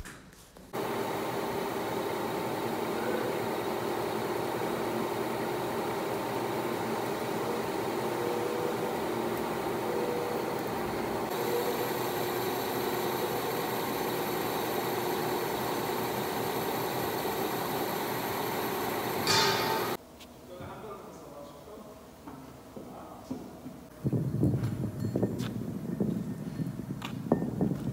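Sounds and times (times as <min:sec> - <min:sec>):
machinery humming: 0:00.8 - 0:20.0.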